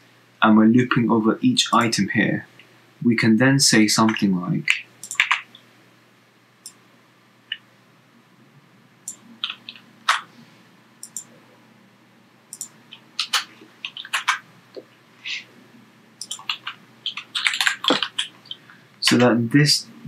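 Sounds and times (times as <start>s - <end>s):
computer mouse clicks: 4.1s - 5.5s, 9.1s - 10.3s, 11.0s - 11.3s, 12.5s - 14.4s, 16.2s - 19.2s
keyboard keystrokes: 5.0s - 5.4s, 11.0s - 11.3s, 12.5s - 14.4s, 16.2s - 18.4s.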